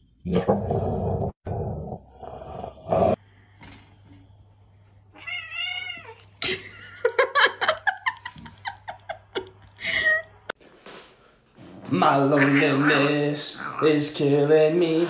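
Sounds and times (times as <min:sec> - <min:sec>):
cat yowling: 0:05.2 - 0:06.2.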